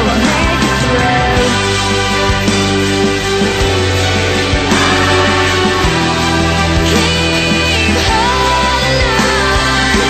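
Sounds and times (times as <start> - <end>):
instrumental music with chords: 0.0 - 7.9
deep drum hits: 4.7 - 7.8.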